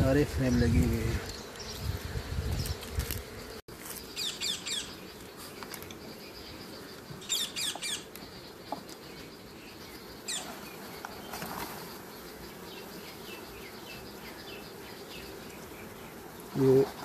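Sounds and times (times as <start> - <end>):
honey bees buzzing: 0.0 - 17.0
birds calling: 3.9 - 16.8.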